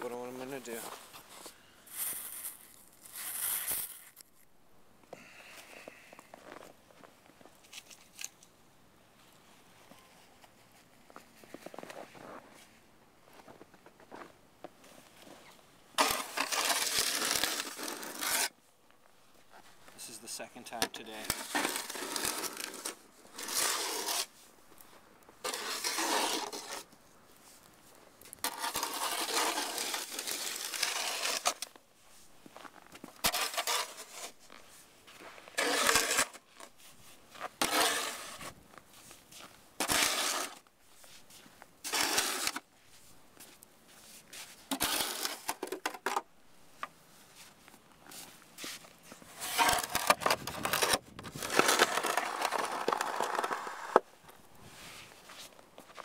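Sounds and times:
snow shovel scraping pavement: 0.2s - 4.2s, 16.0s - 18.5s, 19.5s - 24.5s, 25.4s - 26.9s, 28.3s - 43.1s, 43.9s - 46.2s, 47.3s - 56.0s.

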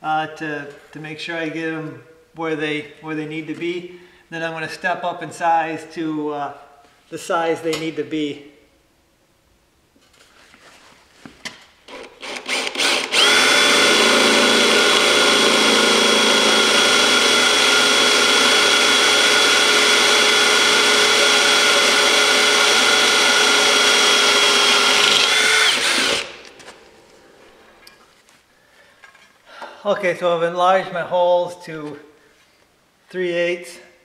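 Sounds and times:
power drill cutting metal: 11.9s - 26.6s.

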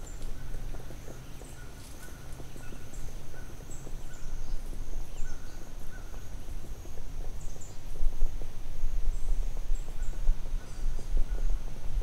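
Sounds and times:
birds chirping: 0.0s - 6.8s.

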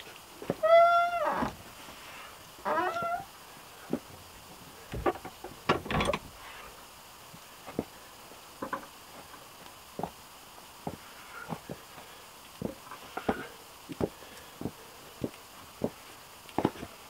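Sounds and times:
wooden door knocking and rattling: 5.0s - 6.3s
boots thudding on wooden steps: 10.0s - 10.2s, 12.6s - 16.0s, 16.6s - 16.9s.

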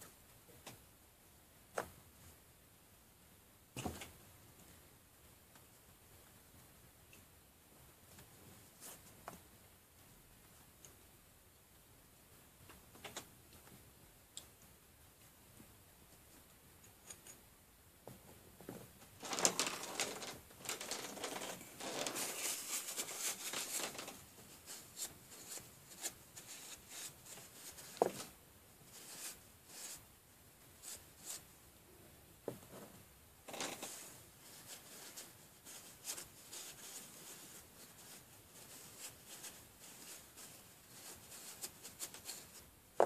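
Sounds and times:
paper towel rustling: 19.2s - 28.3s, 33.5s - 42.6s.

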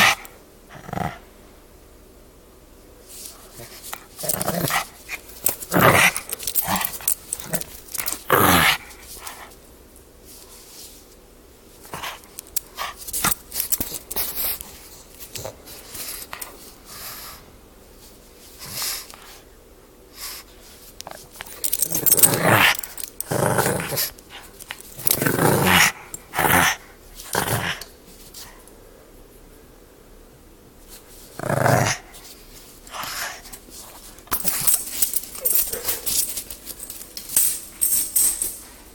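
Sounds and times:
puppy growling in play: 0.0s - 1.4s, 3.4s - 9.6s, 21.1s - 28.0s, 31.2s - 37.0s.

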